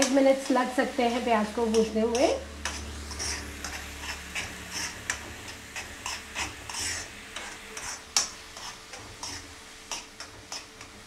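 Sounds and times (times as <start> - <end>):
metal spoon scraping onions in pan: 0.0 - 11.0
onions sizzling in oil: 0.0 - 11.0.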